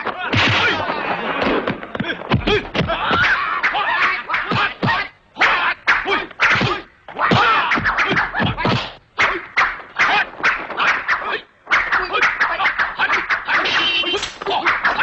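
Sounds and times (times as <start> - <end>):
punch and kick whacks: 0.3 - 0.8.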